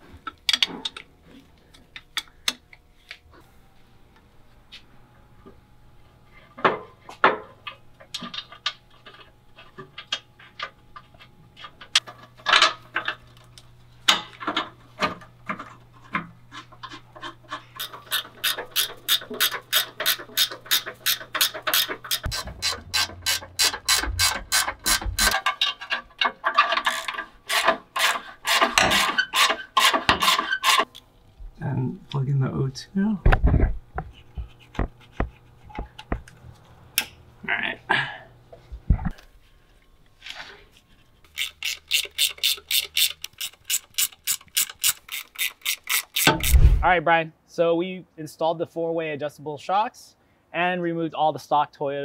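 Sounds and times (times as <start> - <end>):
ratchet wrench clicking: 17.8 - 25.4, 41.3 - 46.6.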